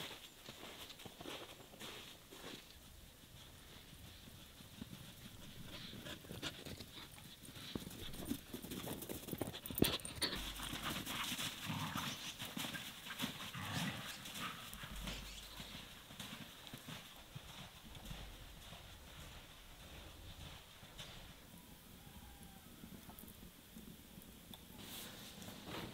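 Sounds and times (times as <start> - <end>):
footsteps crunching through snow: 0.0 - 4.2, 10.4 - 21.4.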